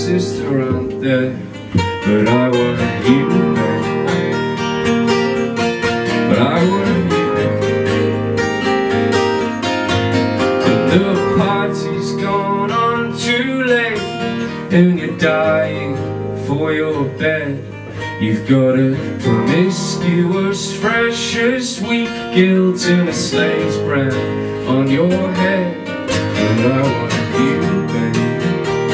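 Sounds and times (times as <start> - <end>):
two acoustic guitars playing: 0.0 - 28.9.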